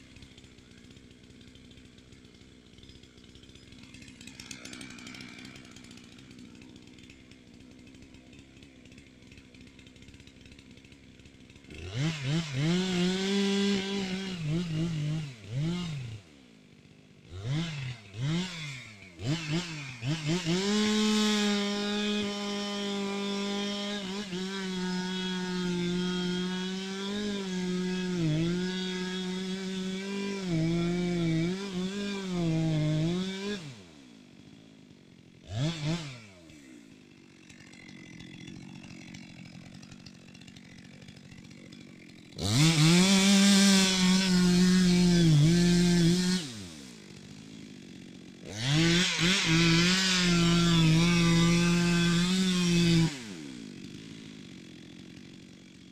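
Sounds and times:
chainsaw revving and cutting: 0.0s - 55.9s.

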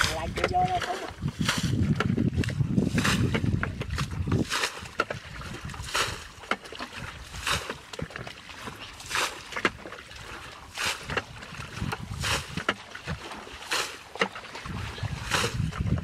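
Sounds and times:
bucket sloshing in water: 0.0s - 16.0s
splashes of flung water: 3.9s - 16.0s.

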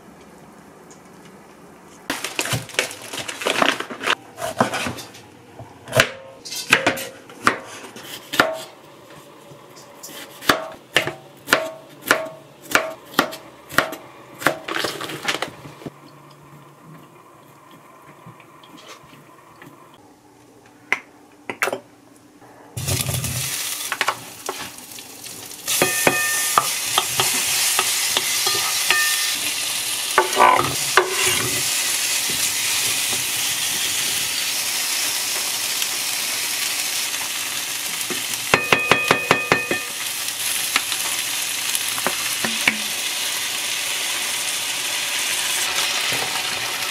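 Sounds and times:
knife chopping on wooden board: 10.4s - 14.6s
food sizzling in frying pan: 22.8s - 46.9s.

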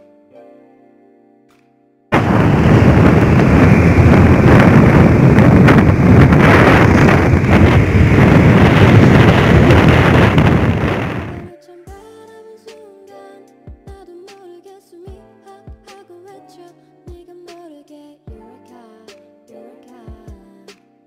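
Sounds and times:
wind roaring across microphone: 2.1s - 11.5s
road noise: 2.2s - 11.5s.

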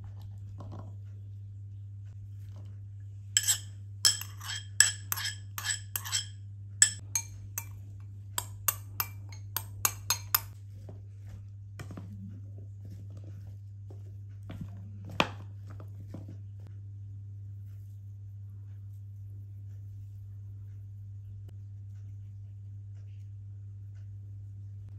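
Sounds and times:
low steady hum: 0.0s - 24.9s
cutlery clinking on a dish: 3.4s - 7.8s.

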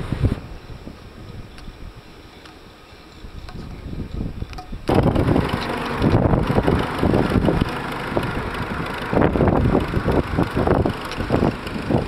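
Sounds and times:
wind buffeting microphone: 0.0s - 2.3s, 3.2s - 12.0s
tractor engine running: 4.9s - 12.0s.

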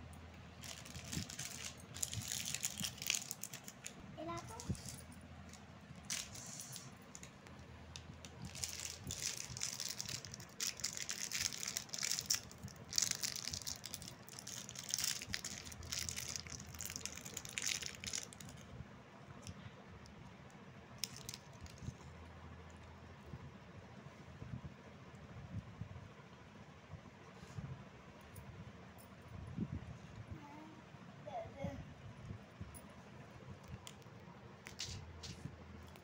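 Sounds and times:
plastic wrapper crinkling: 0.6s - 18.6s, 21.0s - 22.0s.

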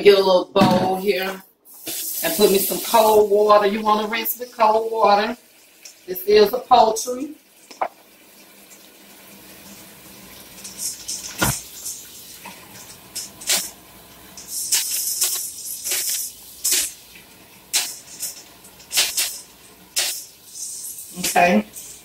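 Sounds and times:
faucet running into plastic bowl: 7.6s - 22.0s.

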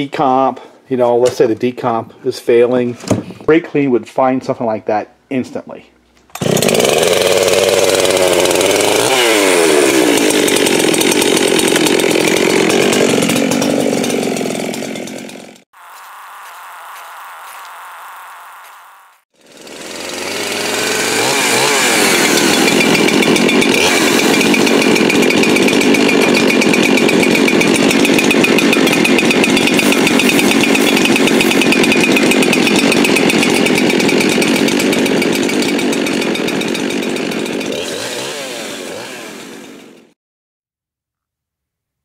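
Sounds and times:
chainsaw engine running: 6.3s - 40.2s.

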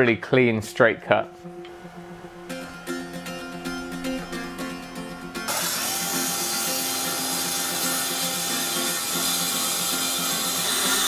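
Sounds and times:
circular saw cutting plywood: 5.5s - 11.0s.

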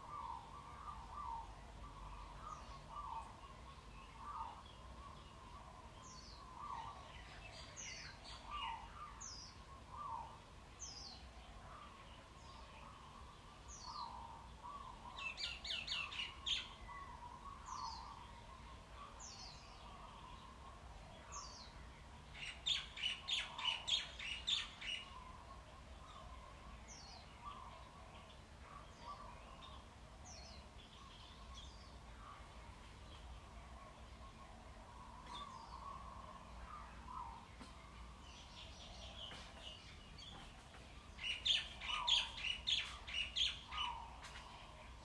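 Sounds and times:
birds chirping: 0.0s - 45.0s.

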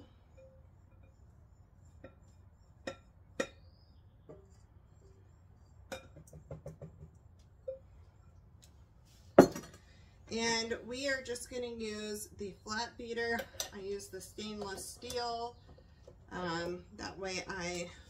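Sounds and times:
ceramic bowl clinking against metal bowl: 2.8s - 3.6s, 5.9s - 6.4s.

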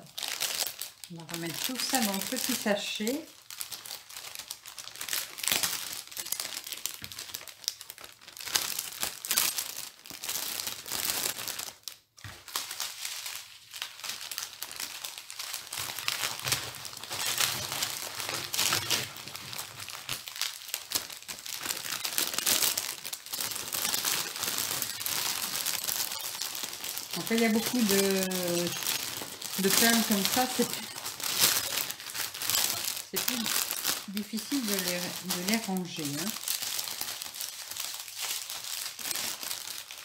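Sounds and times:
plastic bag crinkling: 0.0s - 40.0s
small beads clicking: 20.2s - 34.1s.

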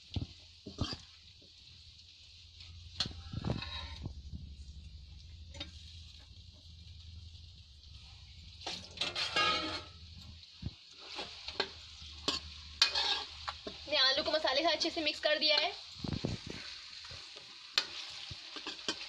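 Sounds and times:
potato slices sizzling in oil: 0.0s - 19.0s
low steady hum: 1.2s - 15.2s
ladle scraping and clinking pan: 2.6s - 4.1s, 5.5s - 6.3s, 8.6s - 10.4s, 11.0s - 13.8s.

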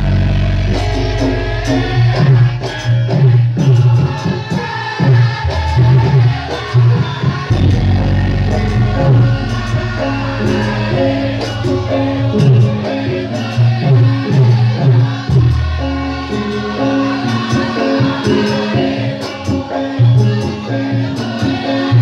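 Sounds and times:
gamelan music: 0.0s - 22.0s
jingling percussion: 0.7s - 22.0s
low drum strokes: 5.0s - 18.3s.

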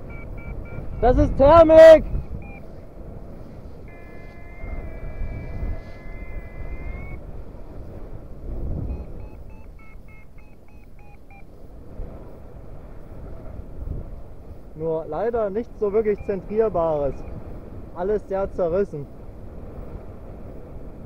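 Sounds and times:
short electronic beeps: 0.0s - 2.8s, 3.8s - 7.2s, 8.8s - 11.5s, 16.0s - 17.4s
variometer high tone: 0.0s - 7.2s, 8.8s - 11.6s, 15.9s - 17.3s
wind rumble on microphone: 0.0s - 21.0s.

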